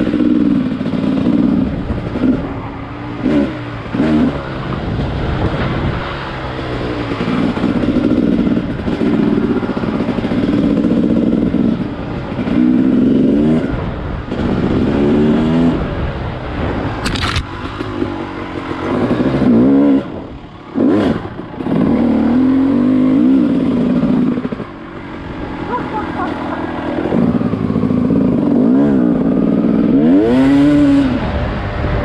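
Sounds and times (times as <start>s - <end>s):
vehicle engine revving: 0.0s - 32.0s.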